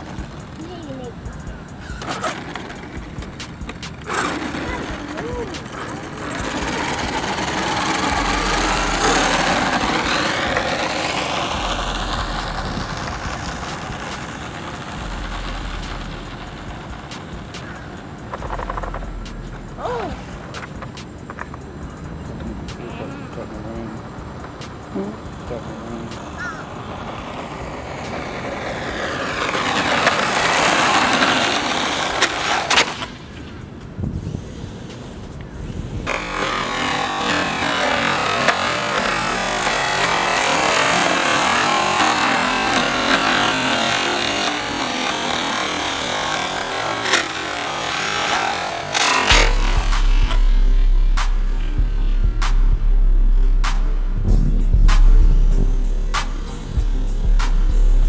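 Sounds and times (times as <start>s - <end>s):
sharp clicks: 0.0s - 22.8s, 23.6s - 34.0s
rc car electric motor whining: 0.0s - 52.6s.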